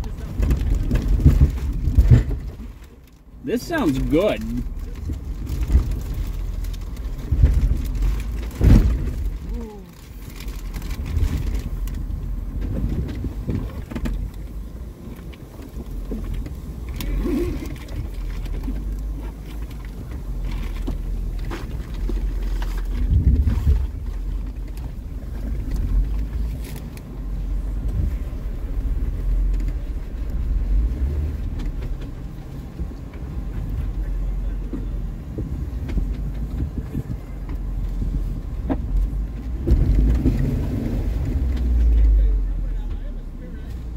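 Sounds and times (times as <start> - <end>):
car engine running low: 0.0 - 43.9
knocks and thumps: 0.3 - 2.8, 7.1 - 9.5.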